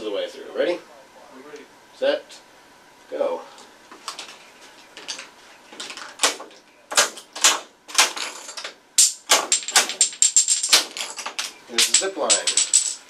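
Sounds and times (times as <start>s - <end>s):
chain-reaction machine clicking: 7.0s - 13.0s.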